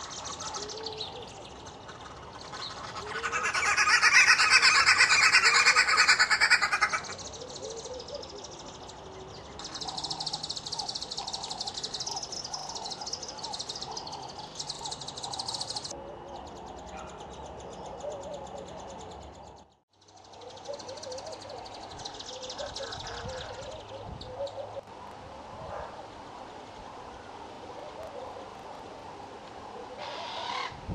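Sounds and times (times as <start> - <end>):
nestling begging calls: 0.0 - 16.0, 29.7 - 30.8
birds chattering loudly: 0.0 - 25.1, 29.6 - 30.9.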